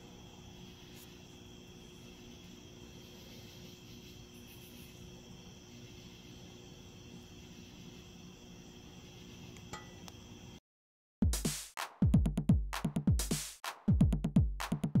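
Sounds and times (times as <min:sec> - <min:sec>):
crickets chirring: 0:00.0 - 0:10.6
deep kick drums: 0:11.2 - 0:15.0
electronic drum-machine music: 0:11.2 - 0:15.0.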